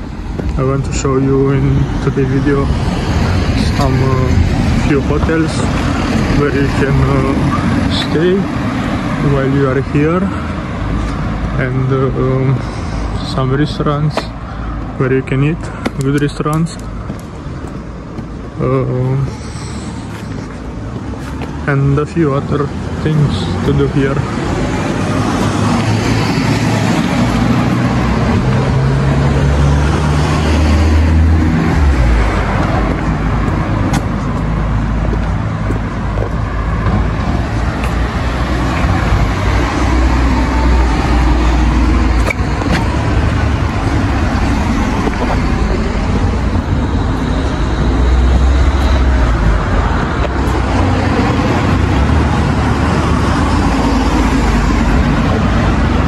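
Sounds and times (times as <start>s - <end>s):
outdoor street noise: 0.0s - 56.0s
heavy low rumble: 11.6s - 56.0s.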